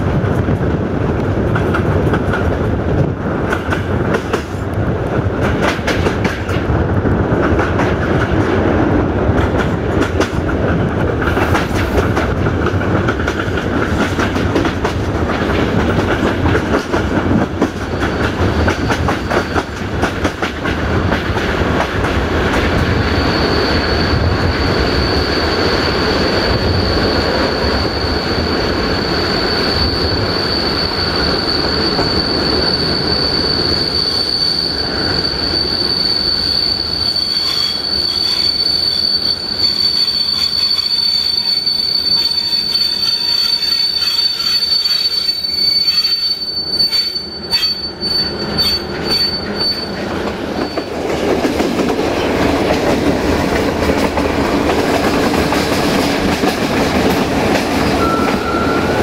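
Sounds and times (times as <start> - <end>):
train rumbling along track: 0.0 - 59.0
high thin wheel squeal: 23.0 - 50.9.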